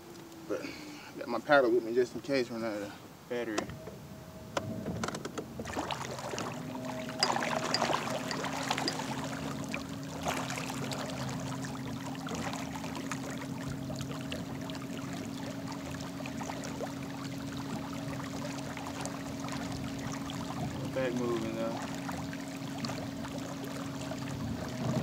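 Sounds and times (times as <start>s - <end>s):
water churning and splashing: 5.6s - 25.0s.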